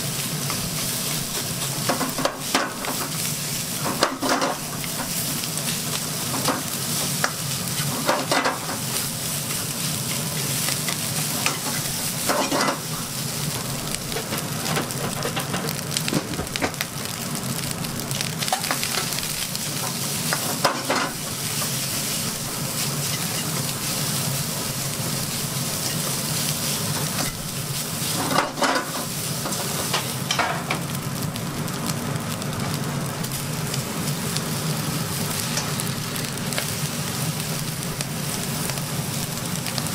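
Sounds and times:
fried rice sizzling in a wok: 0:00.0 - 0:39.9
spatula scraping a pan: 0:03.8 - 0:12.9, 0:20.2 - 0:24.0, 0:28.0 - 0:30.0.

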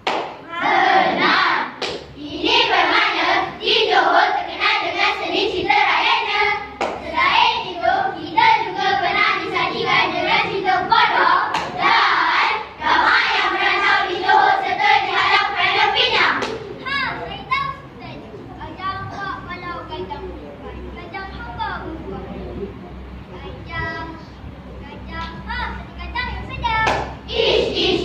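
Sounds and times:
sharp claps: 0:00.0 - 0:00.4, 0:01.7 - 0:02.2, 0:06.7 - 0:07.1, 0:11.5 - 0:11.8, 0:16.3 - 0:16.7, 0:26.8 - 0:27.2
children chanting in unison: 0:00.4 - 0:16.4, 0:27.2 - 0:28.0.

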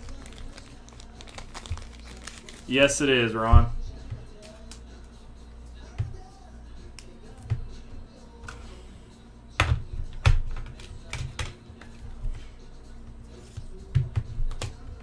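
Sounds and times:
quiet background music: 0:00.0 - 0:15.0.

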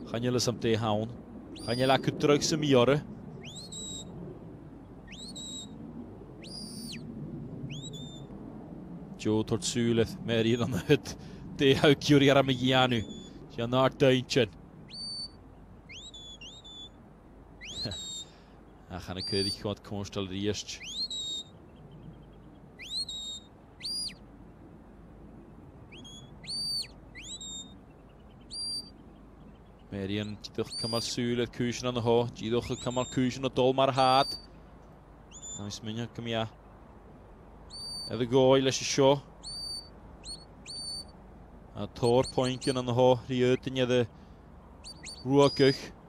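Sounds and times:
high whistle commands: 0:05.1 - 0:05.7.

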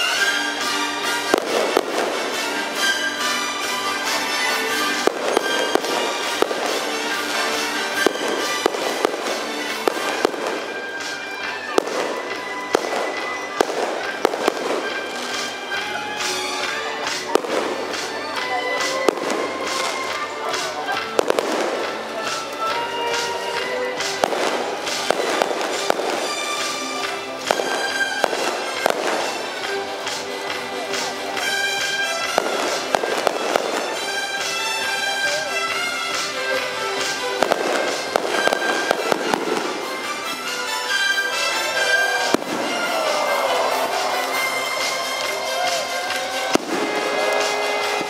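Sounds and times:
fireworks bangs: 0:00.0 - 0:48.0
music: 0:00.0 - 0:48.0.

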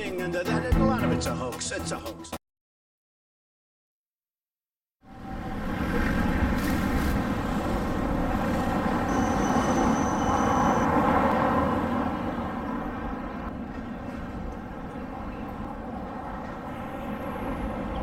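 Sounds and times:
tram wheels rumbling on rails: 0:05.1 - 0:18.0
thin high whine: 0:08.5 - 0:11.2.

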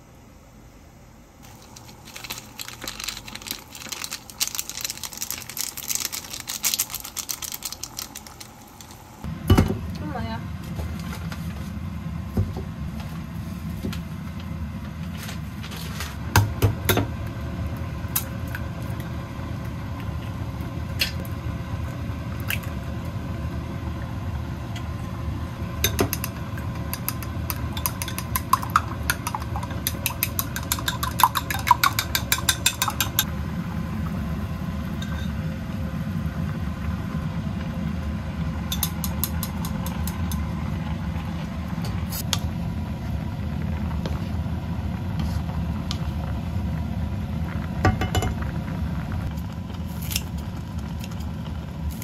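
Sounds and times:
steady low rumble: 0:39.5 - 0:52.0.

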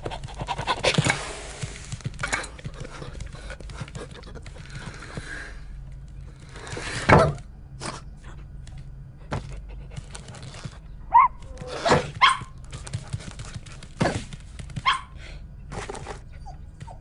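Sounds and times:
dog barking: 0:11.1 - 0:11.4, 0:12.2 - 0:12.5, 0:14.8 - 0:15.2.

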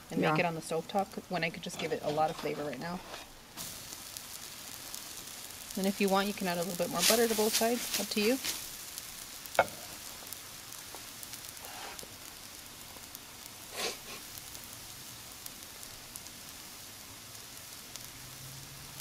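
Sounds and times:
bread sizzling on grill: 0:00.0 - 0:19.0.

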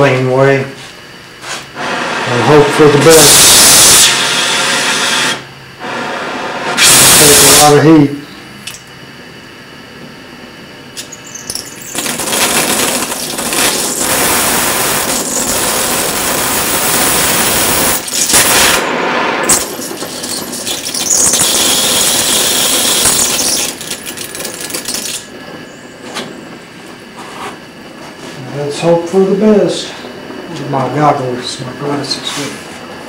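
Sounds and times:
torch flame hissing: 0:01.4 - 0:08.2, 0:11.0 - 0:25.6.

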